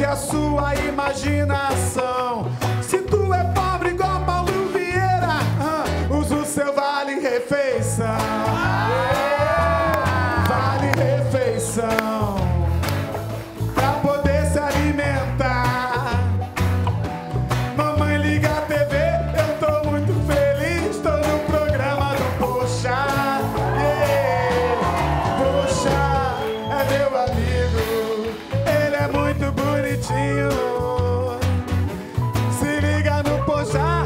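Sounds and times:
repeating bass line: 0:07.8 - 0:34.0.

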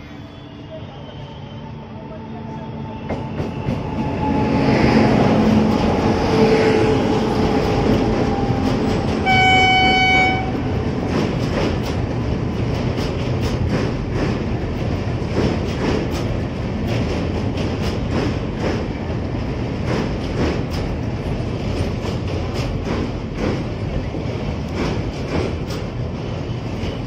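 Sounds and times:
train passing with rumble and rattle: 0:00.0 - 0:27.0
train horn blast: 0:09.1 - 0:10.9.

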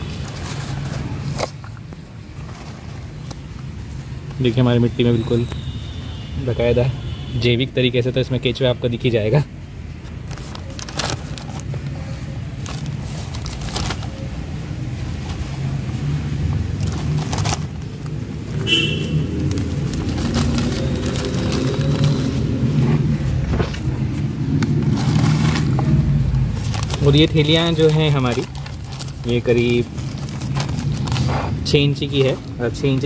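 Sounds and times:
low engine rumble: 0:09.8 - 0:33.0
plastic bags crinkling: 0:10.1 - 0:33.0.

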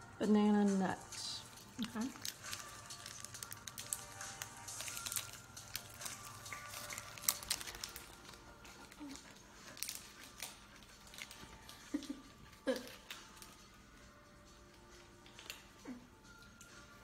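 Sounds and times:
background music: 0:00.0 - 0:17.0
plastic wrapper crinkling: 0:01.6 - 0:13.7.

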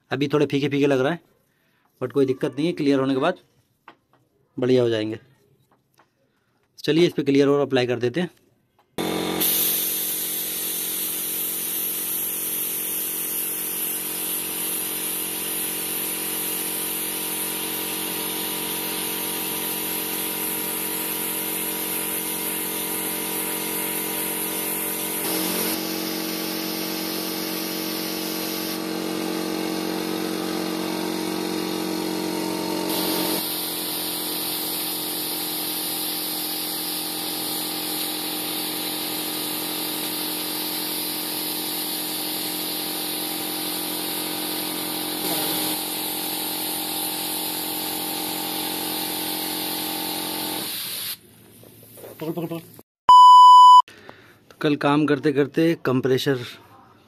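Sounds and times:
air compressor running: 0:09.0 - 0:52.4
spray gun hissing: 0:09.2 - 0:51.2.

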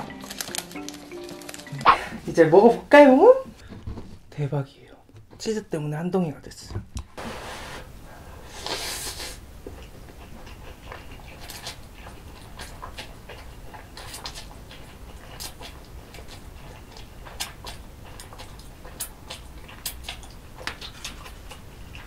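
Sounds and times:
wet chewing: 0:00.0 - 0:02.2, 0:08.6 - 0:22.0.

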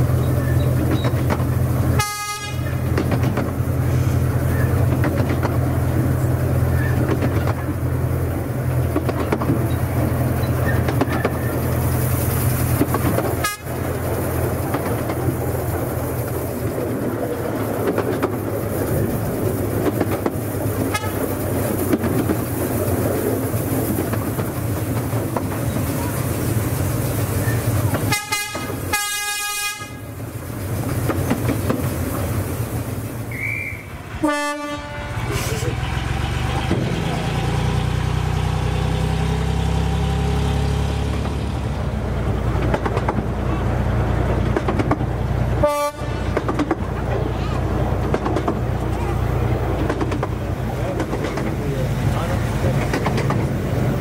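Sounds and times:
train rumble and wheel clatter: 0:00.0 - 0:54.0
train horn blasts: 0:02.0 - 0:02.8, 0:13.4 - 0:13.8, 0:20.9 - 0:21.3, 0:28.1 - 0:30.1, 0:33.4 - 0:35.5, 0:45.6 - 0:46.4.

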